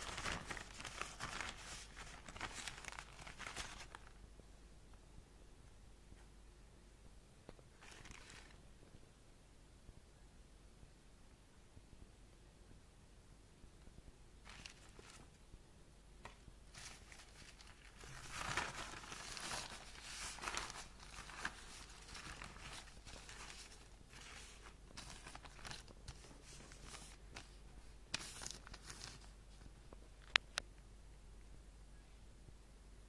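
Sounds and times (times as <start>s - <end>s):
plastic bags crinkling: 0.0s - 4.1s, 7.8s - 8.6s, 14.4s - 15.3s, 16.7s - 27.5s.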